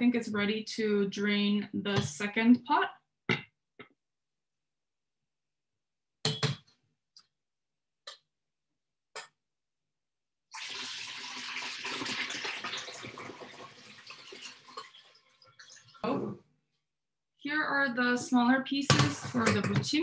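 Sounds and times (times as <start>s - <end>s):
water rushing into sink: 10.5s - 16.1s.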